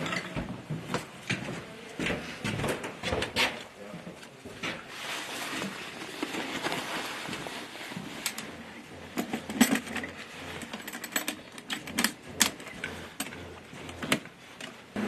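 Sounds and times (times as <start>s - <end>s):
helmet clicks and knocks: 8.3s - 14.8s.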